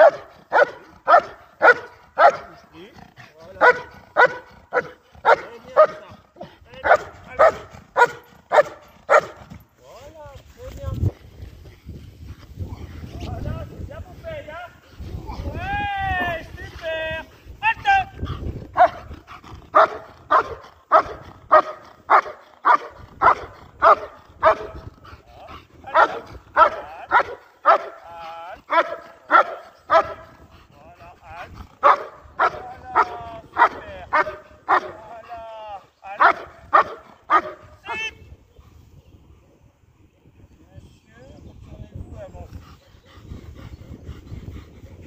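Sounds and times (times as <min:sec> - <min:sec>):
large dog barking: 0:00.0 - 0:09.6, 0:18.7 - 0:24.9, 0:25.7 - 0:30.4, 0:31.4 - 0:37.8.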